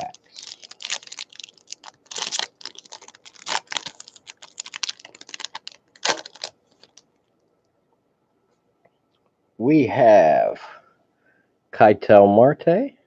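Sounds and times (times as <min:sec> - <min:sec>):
wrapper crinkling and tearing: 0:00.0 - 0:07.0.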